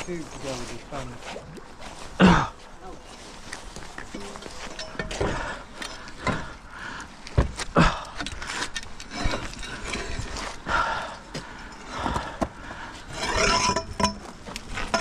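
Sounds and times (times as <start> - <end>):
rope rustling: 0.0 - 15.0
metal tube scraping on stone: 8.6 - 10.7, 13.0 - 15.0.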